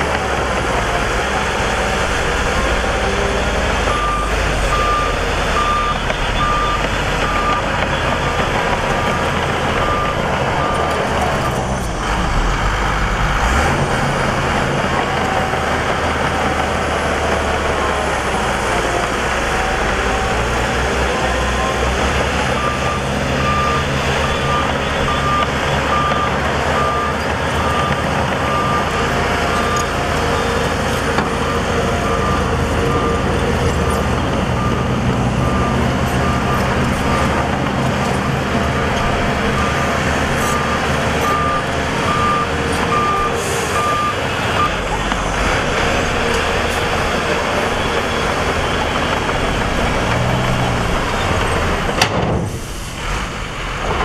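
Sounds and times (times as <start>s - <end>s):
diesel truck engines running: 0.0s - 54.0s
truck reversing alarm beeping: 0.1s - 51.9s.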